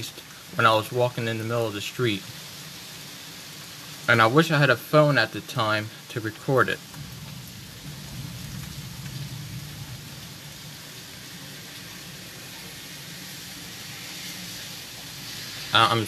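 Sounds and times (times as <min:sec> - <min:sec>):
heavy rain pouring: 0:00.0 - 0:16.0
low rumble: 0:06.9 - 0:12.4.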